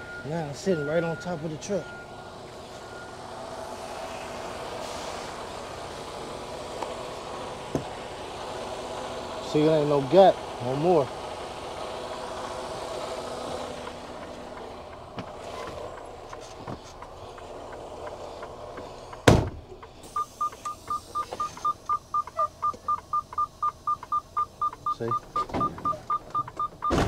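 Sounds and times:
rapid warning chime beeps: 0.0 - 3.2, 20.1 - 27.0
truck engine idling: 0.0 - 27.0
cab door slamming: 19.2 - 19.7, 25.3 - 27.0.

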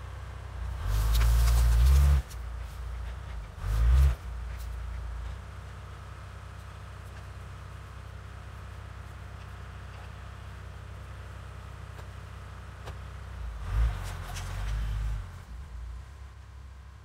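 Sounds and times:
car engine idling: 0.0 - 17.0
engine revving: 0.6 - 2.4, 3.4 - 4.4, 13.4 - 15.6.

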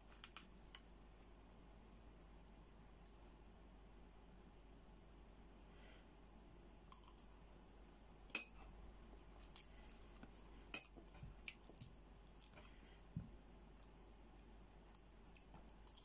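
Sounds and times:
spoon clinking on dishes: 8.3 - 8.6, 10.7 - 11.0.

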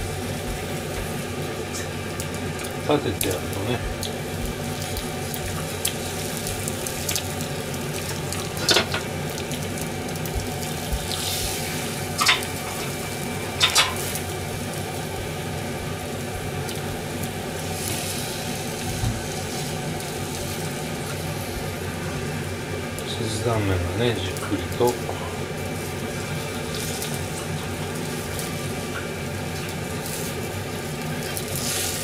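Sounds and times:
food sizzling in a pan: 0.0 - 32.0
chopsticks clicking on pan: 12.2 - 12.5, 13.6 - 14.1.

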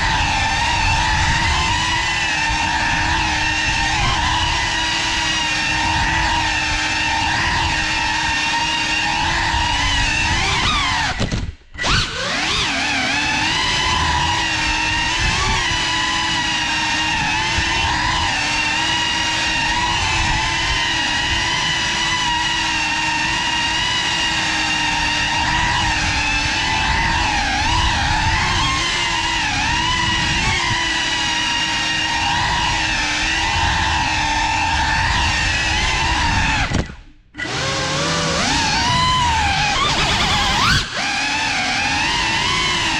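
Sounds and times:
drone motors whining: 0.0 - 42.9.

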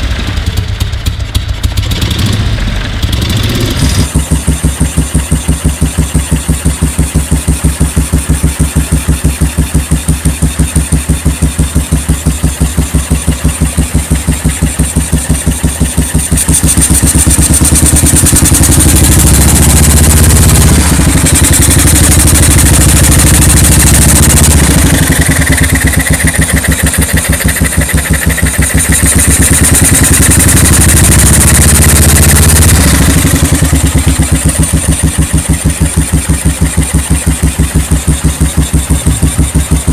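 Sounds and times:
motorcycle engine idling and revving: 0.0 - 39.9.

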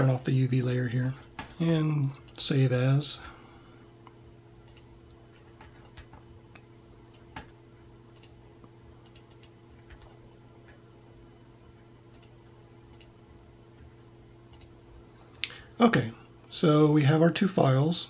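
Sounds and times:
steady low hum: 0.0 - 18.0
mouse and keyboard clicks: 9.0 - 10.1.

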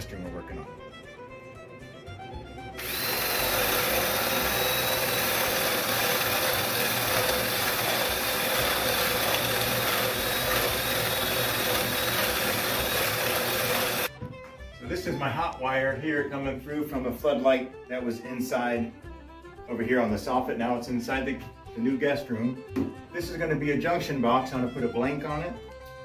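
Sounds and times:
power drill boring through wood: 2.8 - 14.1.

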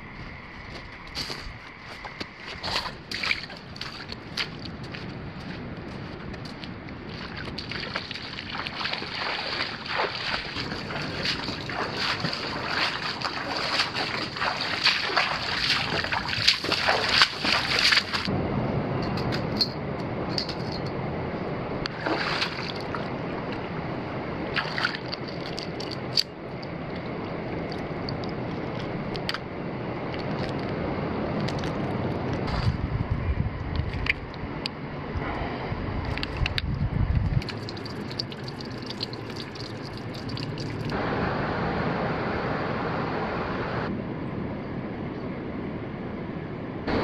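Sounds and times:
wind: 0.0 - 47.0
boots splashing through water: 0.9 - 18.3, 21.9 - 23.6, 24.5 - 26.3
lapping water: 7.1 - 18.3, 24.5 - 28.9, 36.0 - 41.0.

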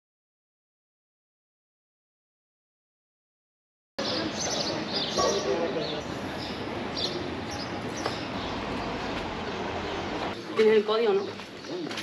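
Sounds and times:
outdoor street sound: 4.0 - 12.0.

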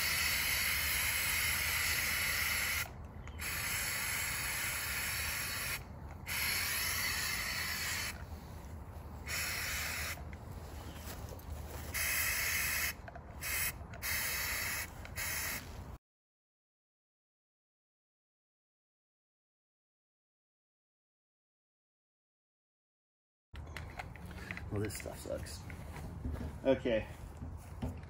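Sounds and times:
aerosol can spraying in hissing bursts: 0.0 - 8.2, 9.3 - 10.2, 11.9 - 15.6.

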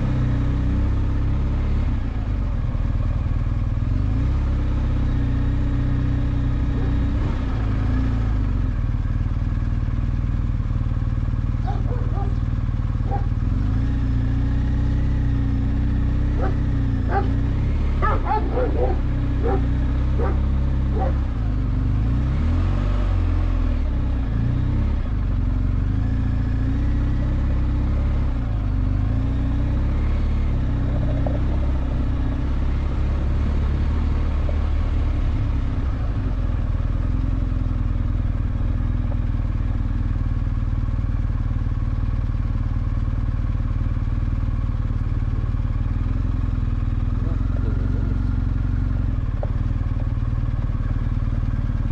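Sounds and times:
motorcycle engine running: 0.0 - 51.9.

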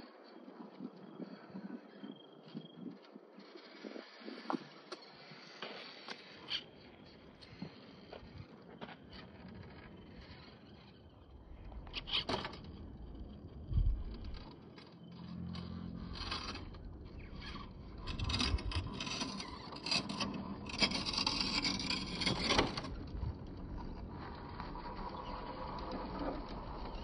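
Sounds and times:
tyres scraping on rock: 16.1 - 23.0.

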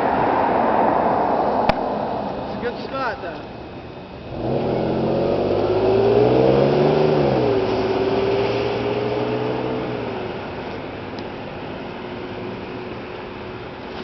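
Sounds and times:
passing vehicle engine accelerating: 4.2 - 11.0.

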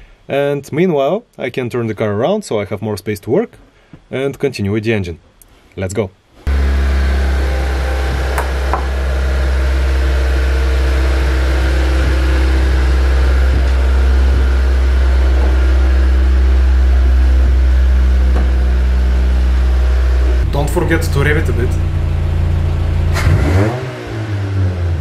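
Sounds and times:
car engine idling: 6.5 - 24.3.

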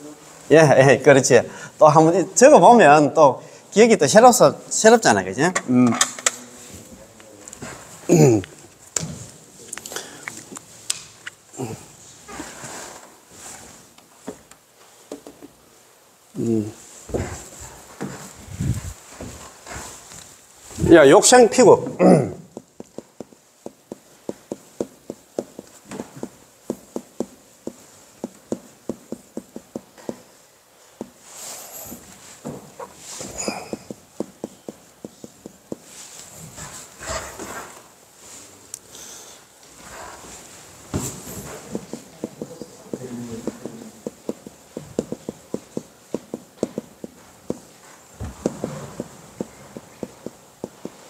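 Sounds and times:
marker tapping on whiteboard: 22.5 - 30.3, 33.2 - 35.9, 41.5 - 51.0.

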